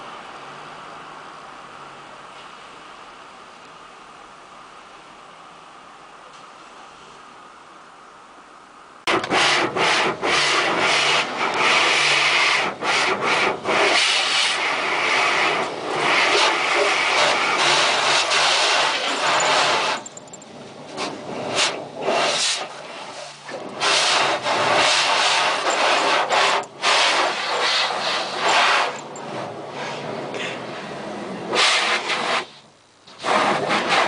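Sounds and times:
car wash brushes scrubbing: 9.1 - 20.1, 20.8 - 30.6, 31.4 - 34.0
spraying water: 9.1 - 20.2, 20.9 - 30.0, 31.5 - 34.0.

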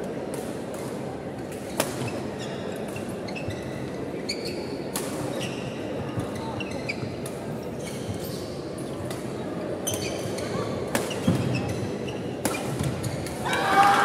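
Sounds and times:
sneakers squeaking on wooden court: 5.4 - 7.2, 9.9 - 13.4.

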